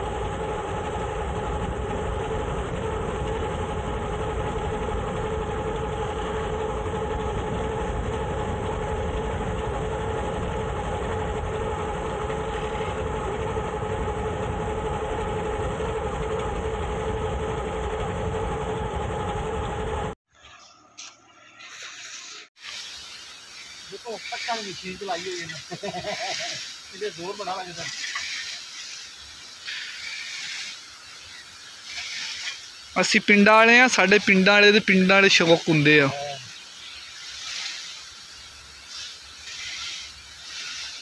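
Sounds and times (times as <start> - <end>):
low rumble: 0.0 - 20.2
vehicle engine running steadily: 0.0 - 20.2.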